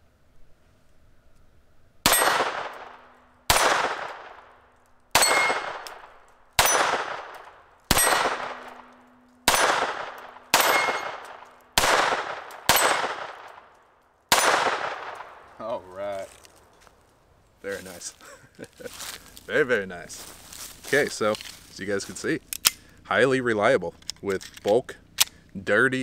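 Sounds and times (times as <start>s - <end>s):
pistol shots with ringing tail: 2.0s - 15.5s.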